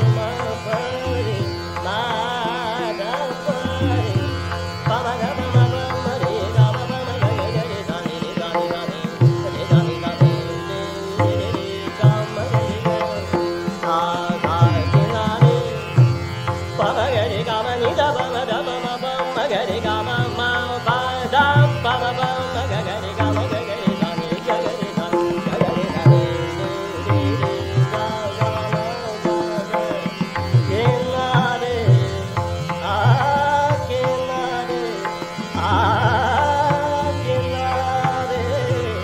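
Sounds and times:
classical singing voice: 0:16.8 - 0:39.0.

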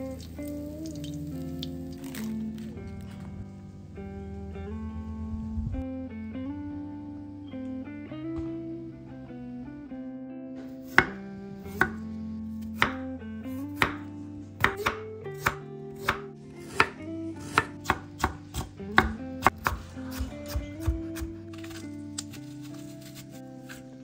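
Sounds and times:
soft guitar music: 0:00.0 - 0:24.0
knife chopping on cutting board: 0:10.9 - 0:12.0, 0:12.7 - 0:13.0, 0:13.6 - 0:23.8.

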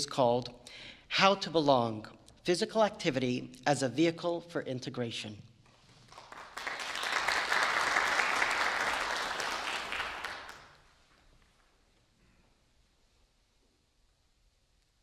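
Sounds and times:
audience applauding: 0:05.9 - 0:10.8.

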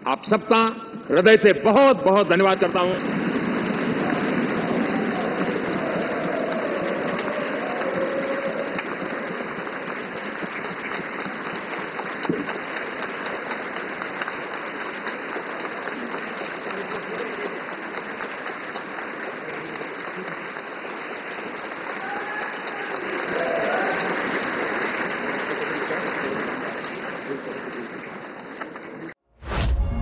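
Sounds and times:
audience applauding: 0:01.4 - 0:29.1
faint crowd voices: 0:03.0 - 0:10.9.

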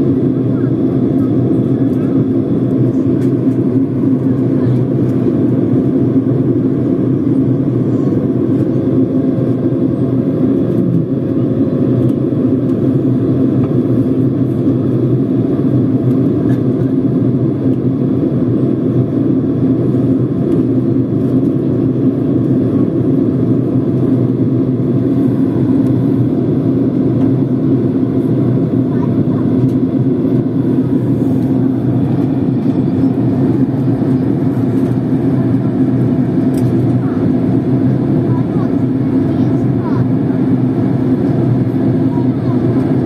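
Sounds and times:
airliner cabin engine rumble: 0:00.0 - 0:43.0.

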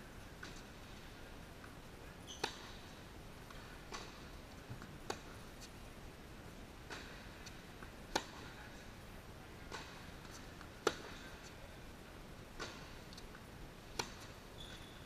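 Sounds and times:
tennis ball struck by racquets: 0:02.3 - 0:02.9, 0:03.5 - 0:05.7, 0:06.8 - 0:08.6, 0:09.7 - 0:11.5, 0:12.5 - 0:14.5.

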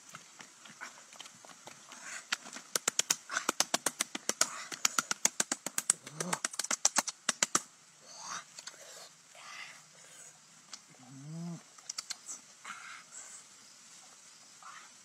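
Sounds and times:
rapid sharp taps: 0:01.1 - 0:07.7.

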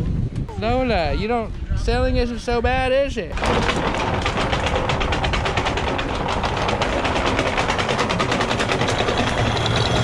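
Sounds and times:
anchor chain rattling: 0:03.3 - 0:10.0.

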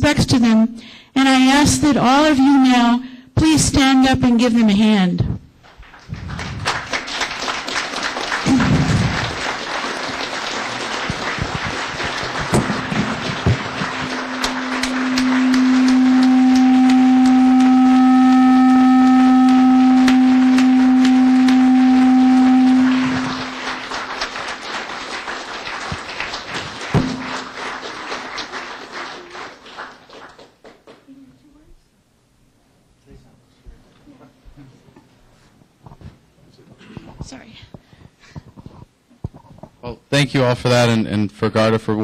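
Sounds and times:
steady low tone: 0:02.3 - 0:03.2, 0:10.5 - 0:24.7, 0:26.8 - 0:27.8
audience applauding: 0:05.7 - 0:31.2.

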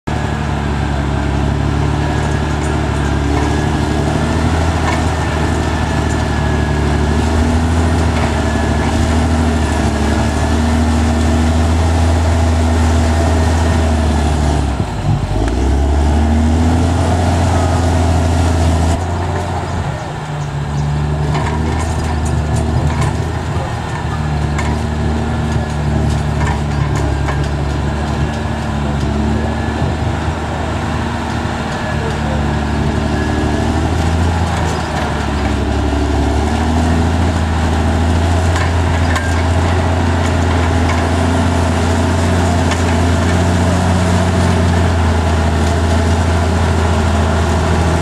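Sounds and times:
bulldozer diesel engine under load: 0:00.0 - 0:48.0
blade pushing dirt and rocks: 0:00.1 - 0:48.0.

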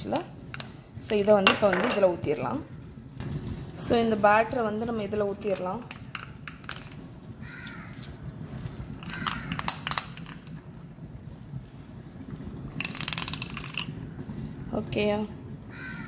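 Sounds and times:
low room hum: 0:00.0 - 0:16.0
crows cawing: 0:07.4 - 0:08.0, 0:09.0 - 0:09.7, 0:15.7 - 0:16.0.

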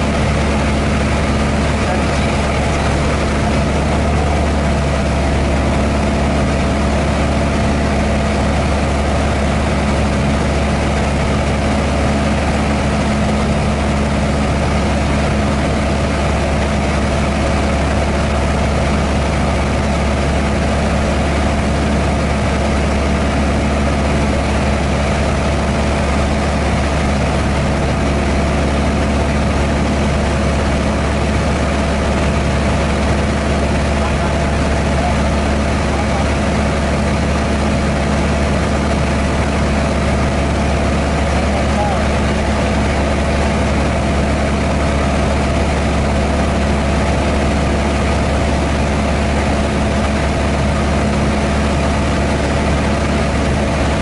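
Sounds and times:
light airplane engine drone: 0:00.0 - 0:54.0.

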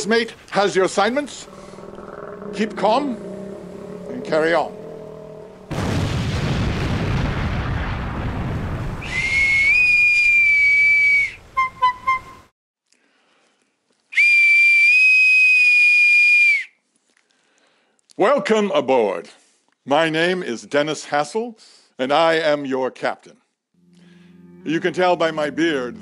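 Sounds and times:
loud rumbling boom: 0:05.1 - 0:09.1
short whistle toots: 0:09.0 - 0:12.4, 0:14.1 - 0:16.8
shrill whistle blast: 0:09.0 - 0:12.4, 0:14.2 - 0:16.7.

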